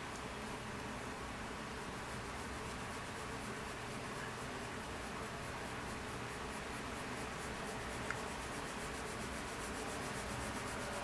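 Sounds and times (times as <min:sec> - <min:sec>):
small tick: 0:00.1 - 0:00.3, 0:08.0 - 0:08.2.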